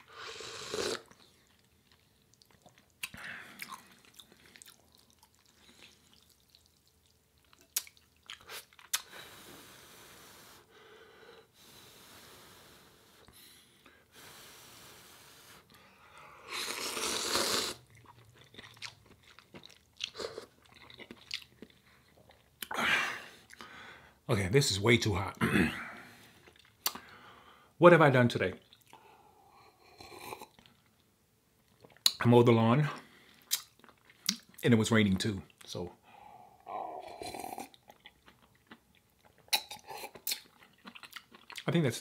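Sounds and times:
blowing on hot noodles: 0:00.0 - 0:01.1, 0:16.4 - 0:17.8
slurping noodles: 0:00.0 - 0:01.6, 0:16.4 - 0:18.1
chewing with wet mouth clicks: 0:01.1 - 0:09.1, 0:17.8 - 0:22.7, 0:26.4 - 0:27.0, 0:31.7 - 0:32.2, 0:33.3 - 0:34.6, 0:37.5 - 0:41.8.

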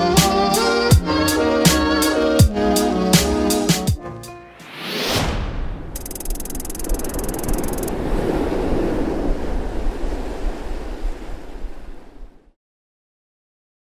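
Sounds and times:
ocean waves surf: 0:04.5 - 0:12.6
low rumble: 0:04.7 - 0:10.0.

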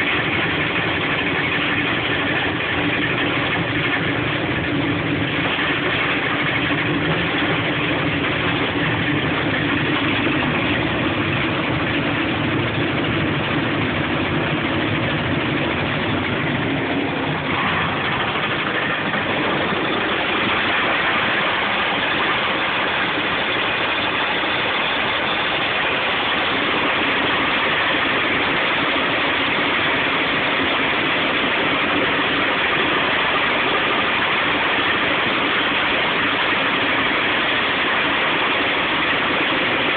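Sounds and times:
branch chipper running: 0:00.0 - 0:31.4.

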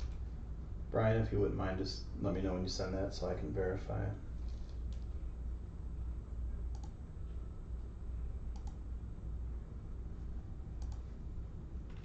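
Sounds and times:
steady low hum: 0:00.0 - 0:12.0
computer clicks: 0:06.7 - 0:07.0, 0:08.5 - 0:08.8, 0:10.8 - 0:11.1.

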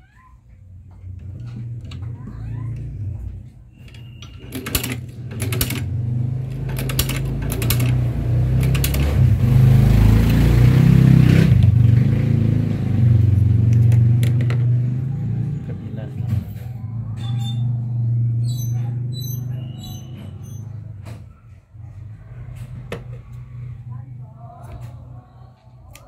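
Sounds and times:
sewing machine stitching: 0:01.1 - 0:10.5.

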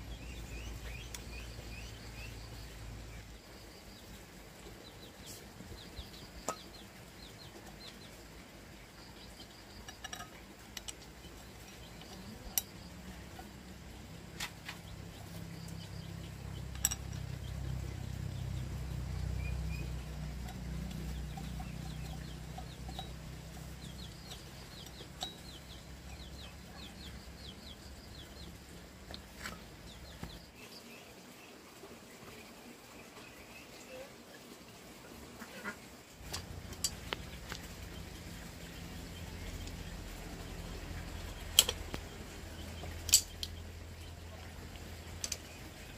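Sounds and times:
chickens clucking: 0:05.1 - 0:30.4, 0:35.1 - 0:45.9
sharp clicks: 0:41.3 - 0:42.2.

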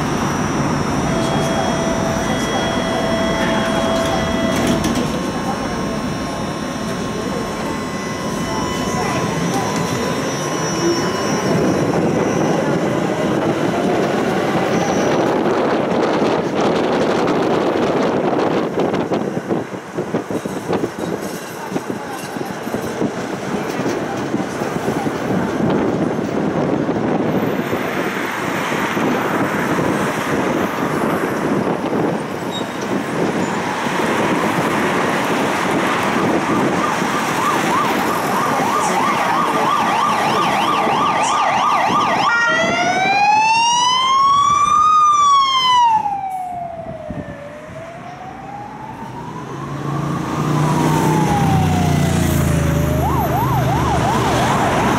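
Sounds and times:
emergency siren wailing: 0:00.0 - 0:20.8, 0:24.8 - 0:54.9
tram rumbling and rattling: 0:00.0 - 0:40.9.

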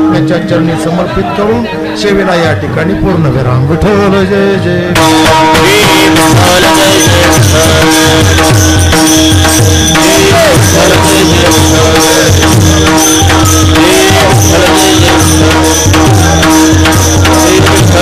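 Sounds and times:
held drone note: 0:05.0 - 0:18.0
jingling cymbals: 0:05.0 - 0:18.0.

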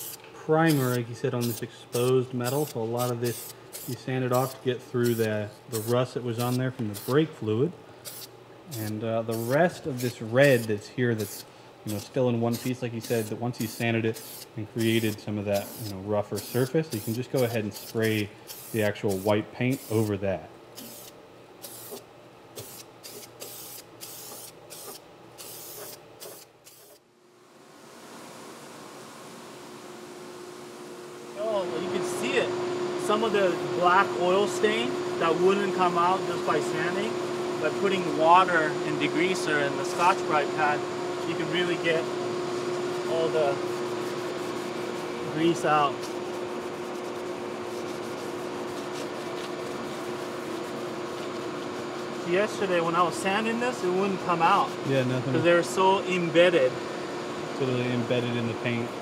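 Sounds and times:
spray paint hissing bursts: 0:00.0 - 0:07.2, 0:08.0 - 0:20.1, 0:20.8 - 0:22.0, 0:22.6 - 0:27.0
mechanical hum: 0:00.0 - 0:59.0
scouring pad scrubbing sheet metal: 0:43.0 - 0:54.9.

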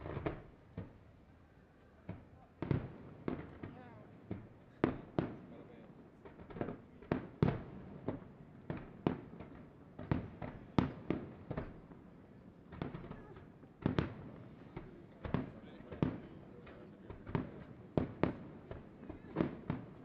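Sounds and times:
fireworks bursts and bangs: 0:00.0 - 0:01.0, 0:02.0 - 0:20.0.

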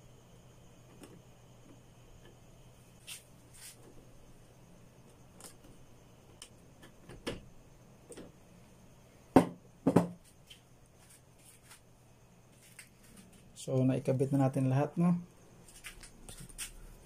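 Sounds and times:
faint hum: 0:00.0 - 0:17.0
knocks: 0:09.4 - 0:10.2.

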